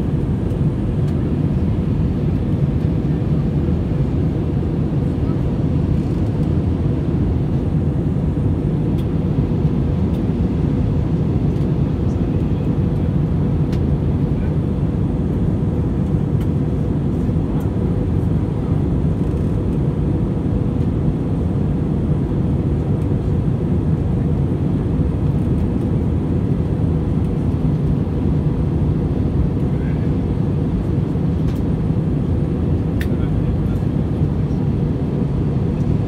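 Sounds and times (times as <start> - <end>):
jet engines and airflow rumble: 0.0 - 36.0.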